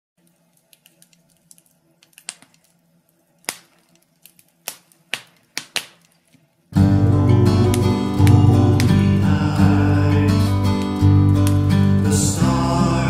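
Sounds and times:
sharp clicks and pops: 0.2 - 2.8, 3.4 - 6.4, 10.3 - 11.8.

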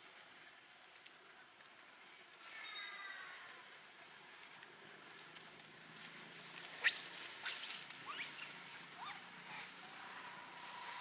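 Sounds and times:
monkey squealing: 6.8 - 9.2.

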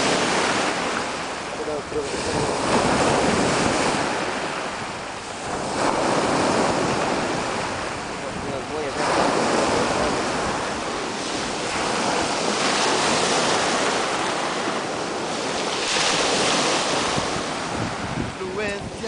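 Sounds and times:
waves washing onto pebble beach: 0.0 - 19.0
wind buffeting microphone: 0.0 - 19.0.

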